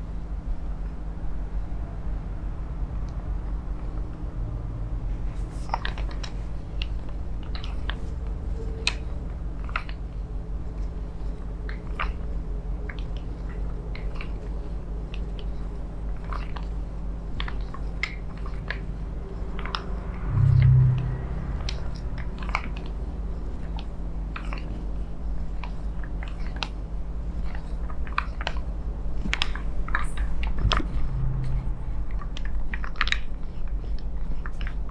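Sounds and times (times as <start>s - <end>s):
low hum: 0.0s - 25.6s, 28.4s - 33.9s
low bump: 18.9s - 22.7s.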